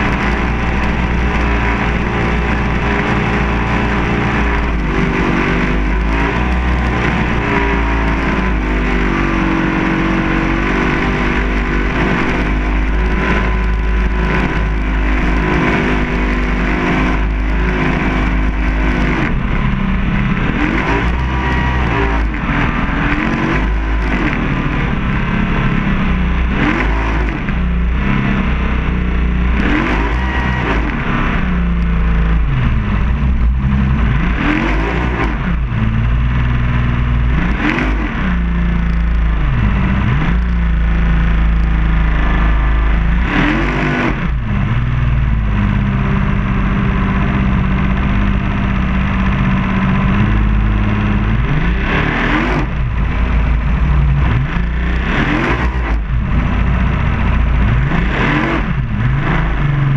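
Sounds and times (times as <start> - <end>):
powerboat engine revving: 0.0 - 59.9.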